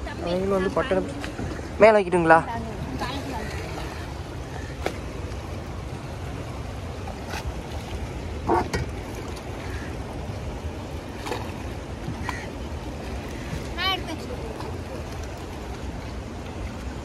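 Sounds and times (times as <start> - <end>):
river water rumbling: 0.0 - 17.0
wind: 0.0 - 17.0.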